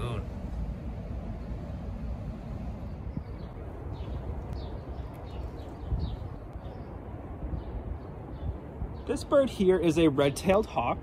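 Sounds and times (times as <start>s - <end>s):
low outdoor rumble: 0.0s - 9.1s
small birds chirping: 2.6s - 11.0s.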